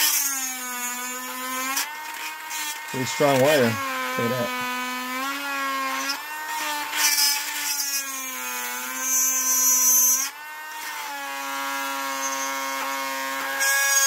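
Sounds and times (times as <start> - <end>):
bit grinding through metal: 0.0 - 10.2
rotary tool whining: 0.0 - 14.0.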